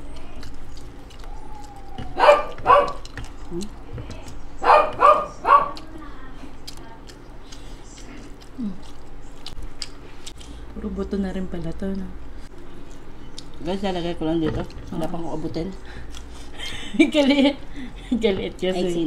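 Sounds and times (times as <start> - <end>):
dog barking: 2.2 - 3.1, 4.6 - 5.8.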